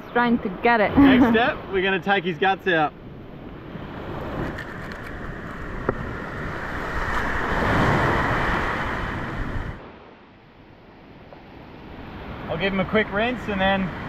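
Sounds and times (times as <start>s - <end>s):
waves breaking on beach: 3.2s - 10.3s, 11.0s - 14.0s.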